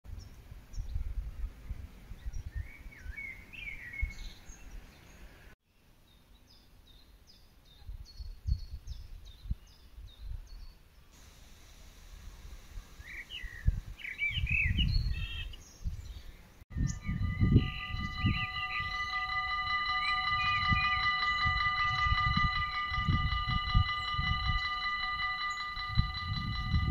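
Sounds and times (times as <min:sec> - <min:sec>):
wind rumbling on microphone: 0:00.1 - 0:04.9, 0:07.8 - 0:10.7, 0:12.2 - 0:26.9
small birds chirping: 0:12.5 - 0:26.9
chord of held tones: 0:16.7 - 0:26.9.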